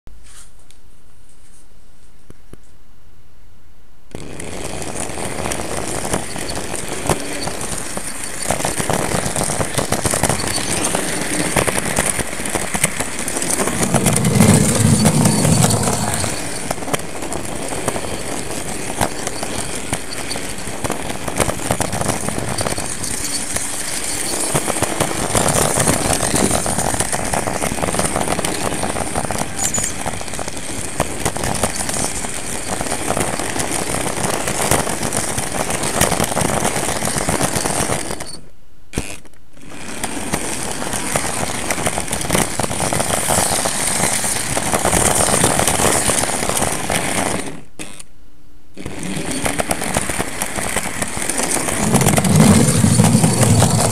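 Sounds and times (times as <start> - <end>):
model train wheels rattling on rails: 4.3 - 35.0, 49.1 - 53.9
low rumble: 13.2 - 16.8, 51.6 - 53.9.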